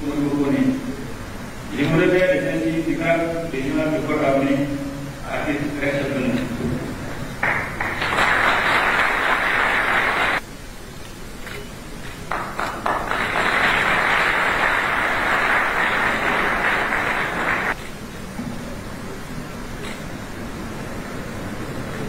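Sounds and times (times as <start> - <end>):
audience applause: 7.4 - 10.4, 12.3 - 17.8.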